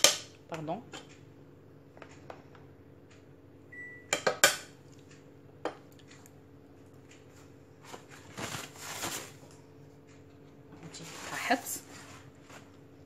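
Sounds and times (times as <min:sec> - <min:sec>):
soft scraping rustle: 0:10.9 - 0:12.8.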